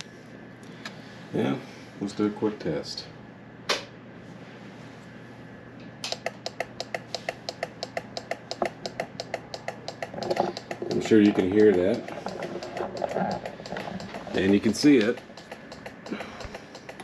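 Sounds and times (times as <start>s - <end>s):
turn-signal relay clicking rapidly: 6.1s - 17.0s.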